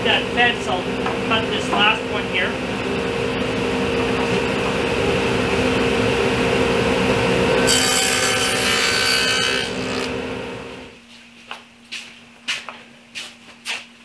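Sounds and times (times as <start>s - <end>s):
table saw humming: 0.0s - 11.0s
saw cutting wood: 7.4s - 10.6s.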